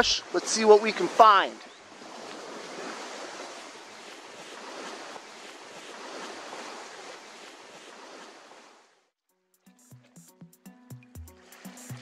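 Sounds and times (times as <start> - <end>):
waves washing on shingle shore: 0.0 - 8.9.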